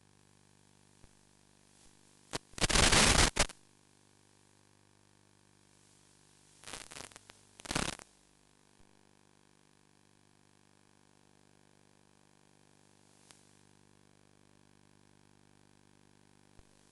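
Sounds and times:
radio static bursts: 2.3 - 3.5, 6.6 - 8.0.

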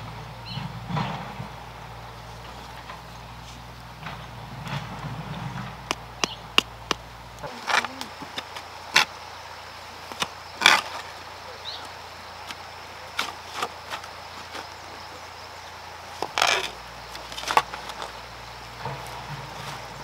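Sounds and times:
hoes chopping stony soil: 2.6 - 9.2, 10.0 - 15.0, 16.0 - 20.0.

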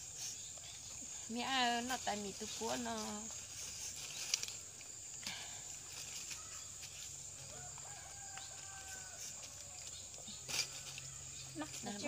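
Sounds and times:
steady high hiss: 0.0 - 7.6.

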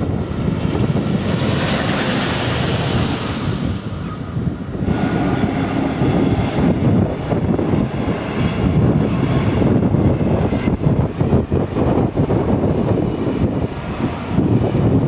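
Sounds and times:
electric locomotive passing: 0.0 - 15.0
wind rumble on microphone: 0.0 - 15.0.

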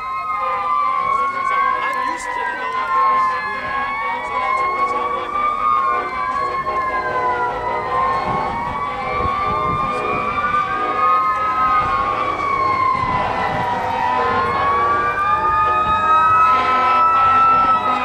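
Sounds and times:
fire truck sirens wailing: 0.0 - 18.0.

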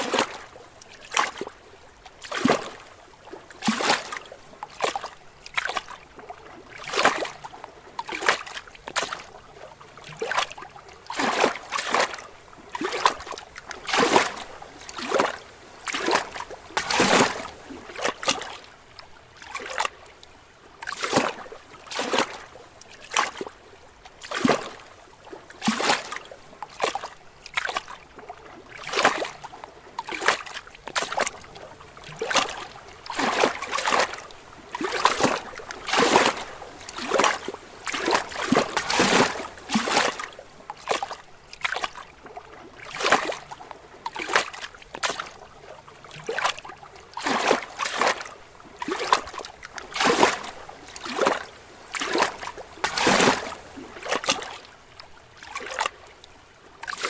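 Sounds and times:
wash of moving water: 0.0 - 57.0
waves splashing against rocks: 30.1 - 41.8, 47.1 - 54.6.

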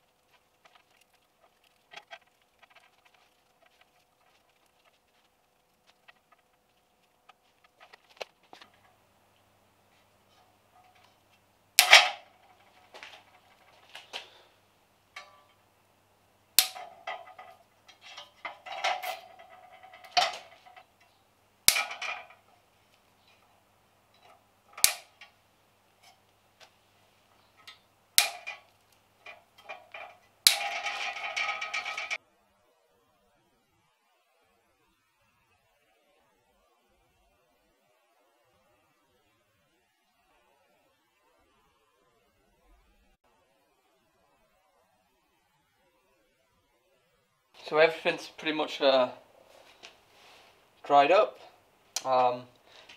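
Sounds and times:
metal clattering rattle: 0.2 - 8.9, 11.8 - 14.0, 15.2 - 15.6, 16.6 - 21.1, 21.7 - 22.6, 27.6 - 32.2
metal knocks and clicks: 16.6 - 21.1, 21.7 - 22.6, 27.6 - 32.2.

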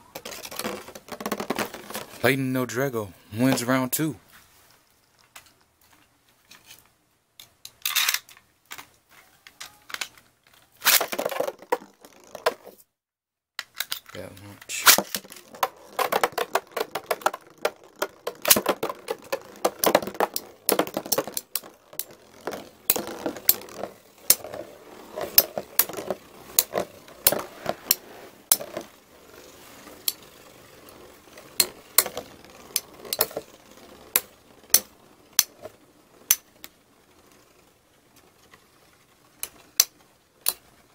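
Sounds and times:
spinning tops clacking together: 10.8 - 12.7, 13.6 - 37.6.

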